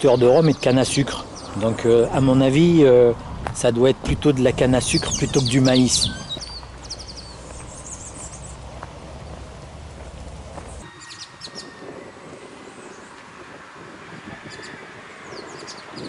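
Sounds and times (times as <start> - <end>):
birds chirping: 0.0 - 13.3, 14.4 - 16.0
steady low rumble: 0.6 - 10.8.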